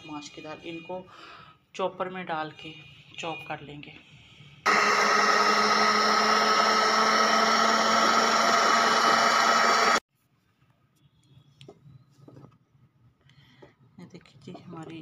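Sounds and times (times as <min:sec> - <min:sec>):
food processor whining: 0:04.7 - 0:10.0.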